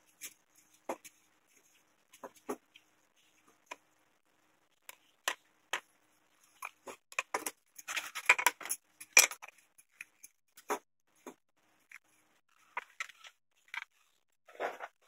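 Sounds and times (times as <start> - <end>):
wooden pieces and tools knocking: 6.6 - 9.5.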